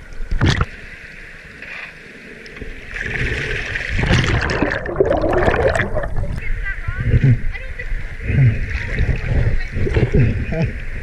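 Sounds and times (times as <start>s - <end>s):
river water sloshing and rushing: 0.4s - 6.6s
muffled underwater bubbling: 3.9s - 7.6s.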